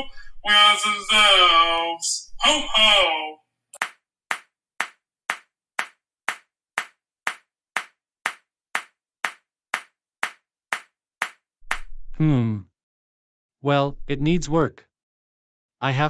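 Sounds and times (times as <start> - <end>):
single hand claps: 3.8 - 11.9.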